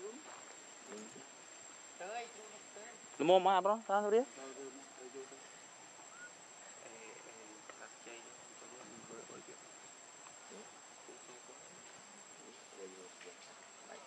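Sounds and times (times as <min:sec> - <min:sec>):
insects droning in trees: 0:00.0 - 0:14.0
distant voices murmuring: 0:04.4 - 0:14.0.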